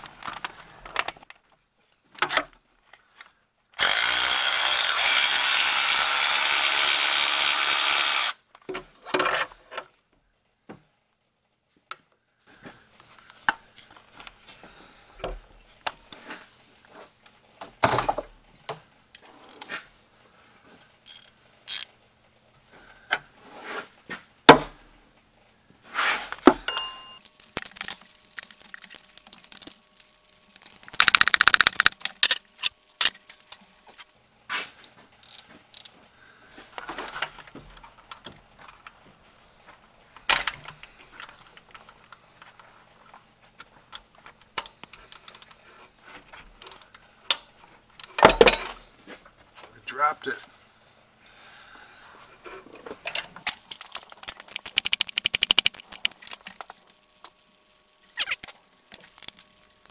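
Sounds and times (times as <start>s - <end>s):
ratchet clicking: 21.1s - 21.9s, 30.6s - 32.4s, 53.5s - 56.6s
metal-on-metal clinks: 26.6s - 29.8s.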